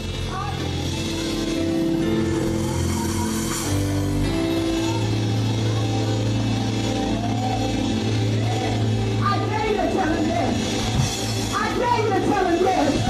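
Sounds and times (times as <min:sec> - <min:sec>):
live gospel band music: 0:00.0 - 0:13.0.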